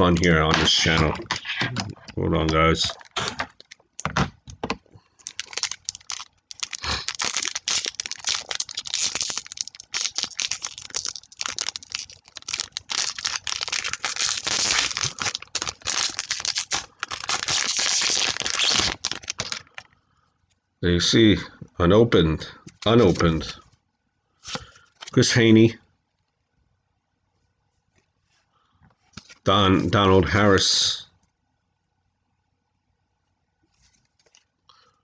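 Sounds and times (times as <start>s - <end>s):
card pack wrapper crinkling: 0.0s - 4.4s, 5.2s - 19.9s.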